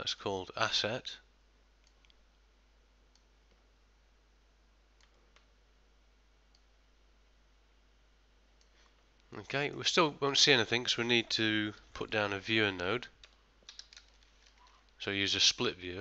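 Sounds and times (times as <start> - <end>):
computer mouse clicks: 3.1 - 3.6, 13.2 - 14.8.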